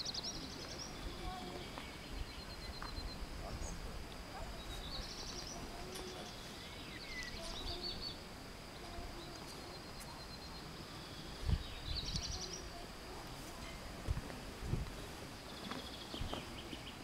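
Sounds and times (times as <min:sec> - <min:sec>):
faint background hiss: 0:00.0 - 0:17.0
songbird trilling: 0:04.6 - 0:08.3.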